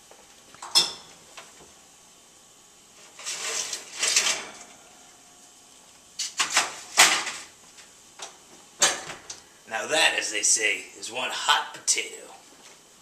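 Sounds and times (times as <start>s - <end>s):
baking tray sliding out of oven: 3.0s - 4.8s
metal tray clanking on grates: 3.2s - 4.6s
oven door shutting: 3.2s - 4.8s, 8.8s - 9.4s.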